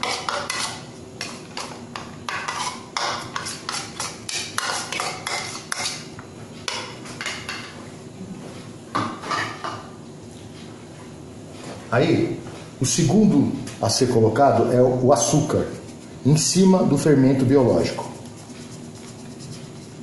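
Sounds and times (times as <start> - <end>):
metal spoon scraping bowl: 0.0 - 0.9, 2.3 - 6.0.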